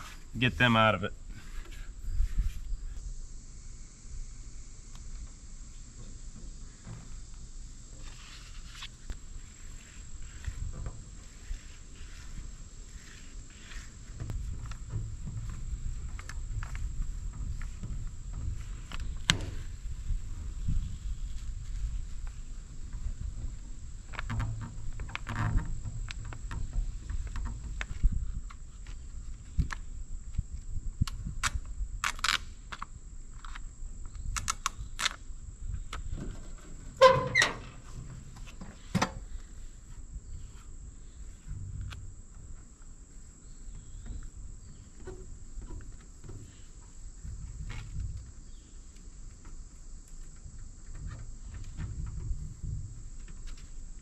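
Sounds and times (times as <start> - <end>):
faint insect drone: 0.0 - 54.0.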